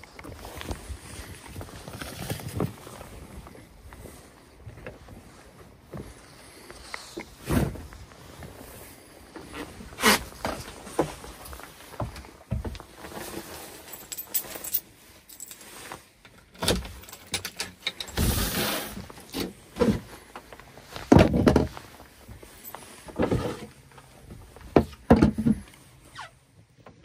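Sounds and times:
knocks clicks and clatter: 16.3 - 18.3.

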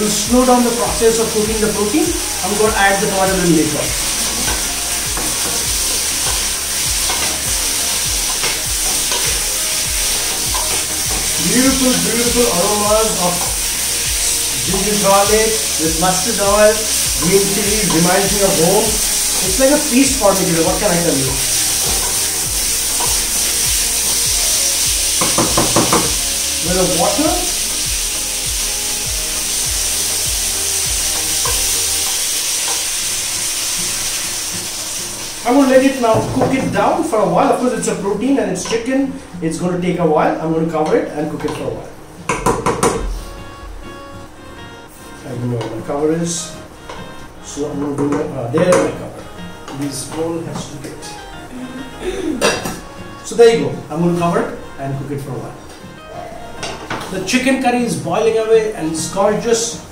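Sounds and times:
chicken sizzling in a pan: 0.0 - 39.0
spatula scraping a pan: 3.9 - 12.1, 16.7 - 26.2, 29.4 - 34.2.

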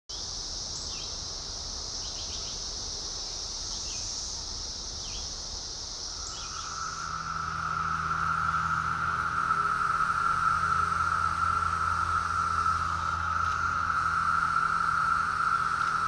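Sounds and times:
cicadas shrilling: 0.1 - 16.0
lower cicada drone: 0.1 - 16.0
low hum: 6.0 - 16.0
short downward chirps: 6.1 - 16.0.

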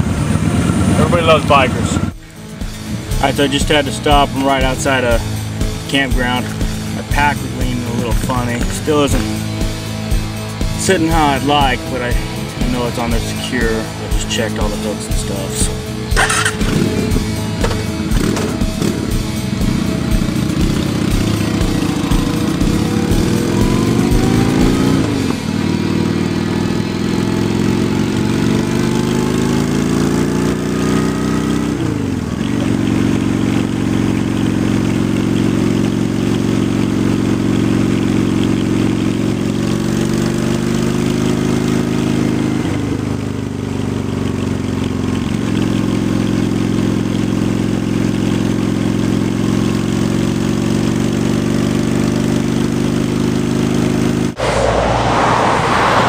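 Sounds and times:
wind and road noise: 0.0 - 14.0, 15.6 - 36.0, 53.8 - 56.0
motorcycle engine running: 0.0 - 54.4.

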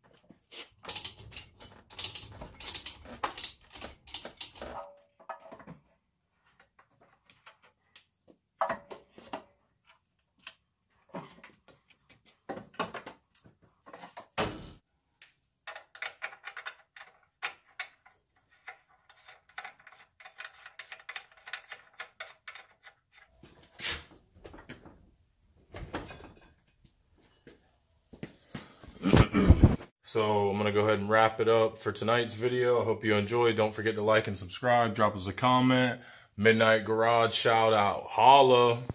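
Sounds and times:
metal parts knocking and clattering: 0.8 - 5.9, 15.6 - 23.0.

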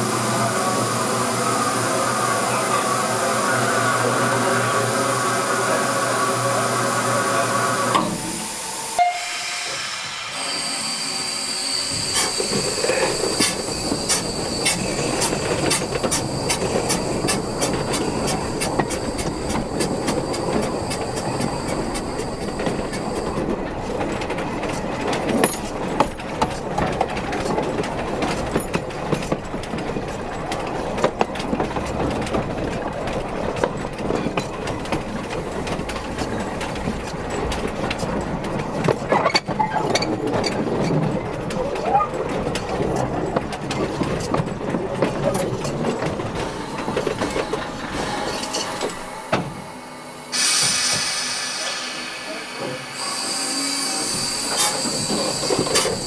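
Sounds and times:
steam hiss: 0.0 - 23.3, 48.0 - 56.0
wheels clattering on track: 11.9 - 49.7, 53.9 - 56.0.

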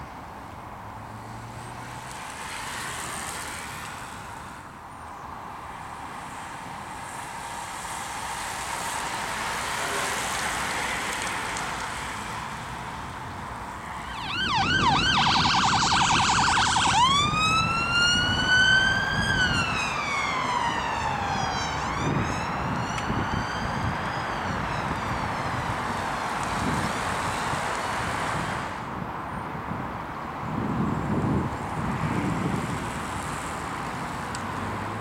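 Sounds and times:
bicycle tyres hissing on tarmac: 2.3 - 4.8
emergency vehicle siren: 13.7 - 27.6.

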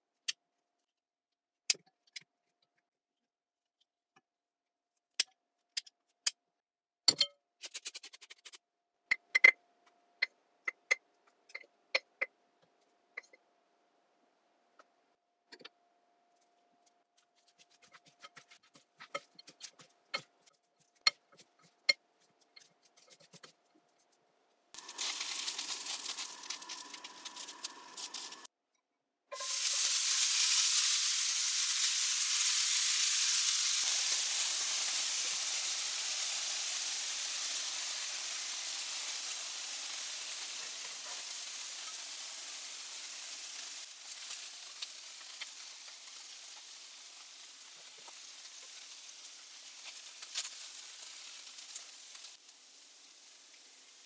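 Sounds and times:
cheese sizzling in a hot pan: 24.8 - 28.5, 29.4 - 54.0.

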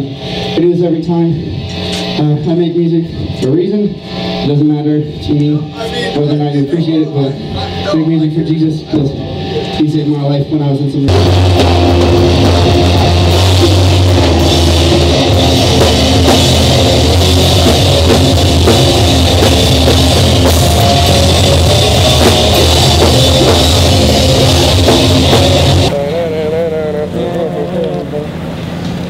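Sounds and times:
drum kit and cymbals: 0.0 - 10.3, 11.0 - 26.7
rock band playing loudly: 0.0 - 27.9.

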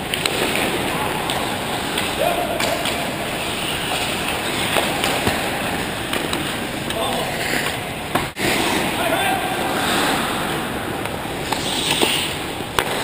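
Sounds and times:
sticks and puck clacking: 0.0 - 13.0
skate blades scraping ice: 0.1 - 9.0, 9.6 - 10.6, 11.4 - 13.0
players calling out: 0.6 - 6.1.

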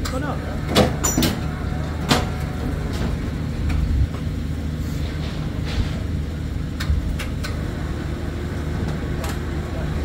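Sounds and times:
equipment knocks and clanks: 0.0 - 4.3
engine humming: 0.0 - 10.0.

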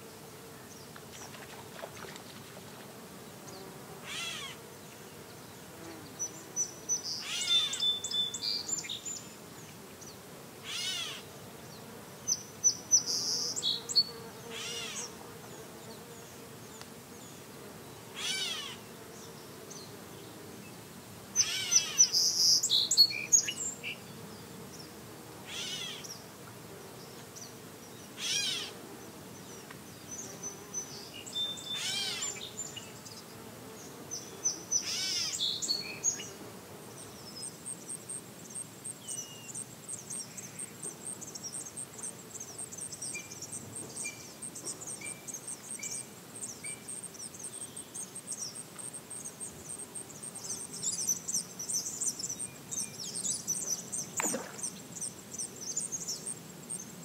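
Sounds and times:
songbirds chirping and trilling: 3.2 - 57.0
catbird mew call: 4.1 - 4.6, 25.5 - 26.0.

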